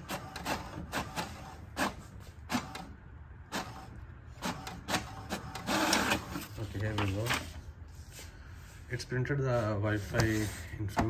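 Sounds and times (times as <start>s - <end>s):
inkjet printer feeding paper: 0.0s - 2.9s, 3.5s - 7.5s, 9.8s - 10.6s.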